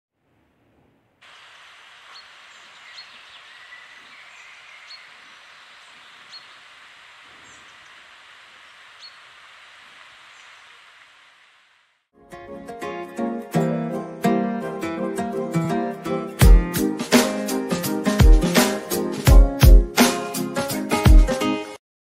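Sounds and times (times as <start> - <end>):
steady forest hiss: 1.2 - 12.1
bird chirping: 1.6 - 10.8.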